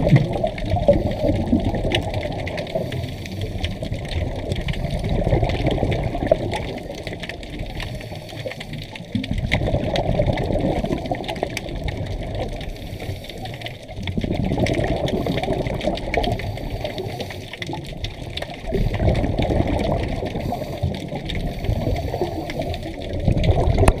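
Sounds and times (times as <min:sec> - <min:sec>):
bubbles rushing and gurgling: 0:00.0 - 0:24.0
diver breathing through regulator: 0:02.6 - 0:04.0, 0:07.7 - 0:08.9, 0:12.6 - 0:13.8, 0:15.0 - 0:17.8, 0:20.2 - 0:23.4.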